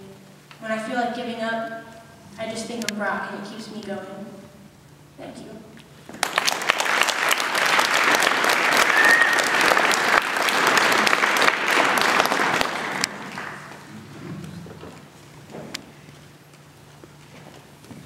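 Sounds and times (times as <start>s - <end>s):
audience applauding: 6.2s - 14.6s.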